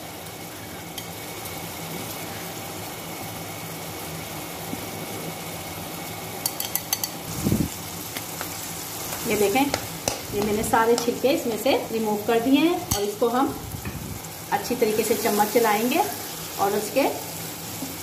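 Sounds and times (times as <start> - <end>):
food sizzling in a frying pan: 0.0 - 18.0
utensil clicking against pan: 9.7 - 11.2.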